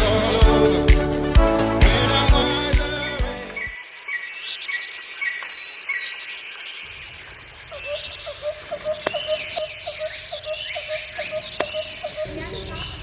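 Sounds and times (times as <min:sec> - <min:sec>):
birds chirping and whistling: 0:03.4 - 0:13.0
high insect drone: 0:06.0 - 0:13.0.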